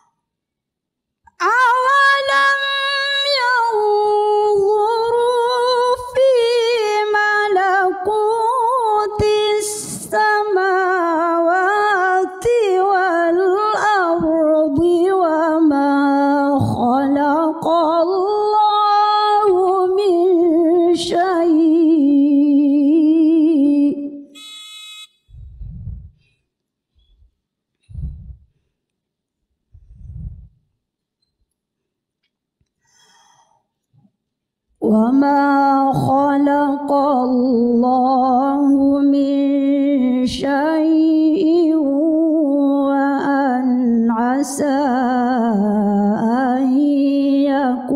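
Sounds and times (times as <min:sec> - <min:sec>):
woman reciting in melismatic chant: 0:01.4 - 0:24.3, 0:34.8 - 0:47.9
soft intake of breath: 0:32.8 - 0:33.8.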